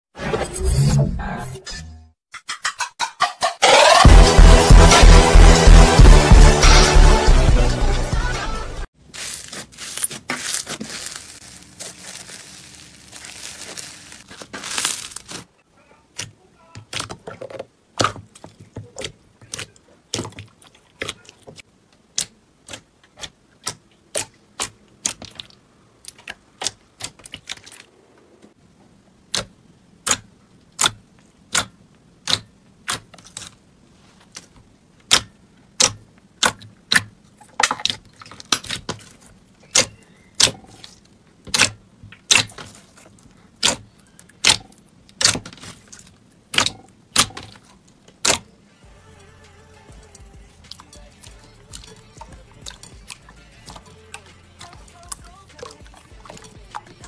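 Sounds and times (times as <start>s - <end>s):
slime crackly rustle: 9.0s - 15.6s.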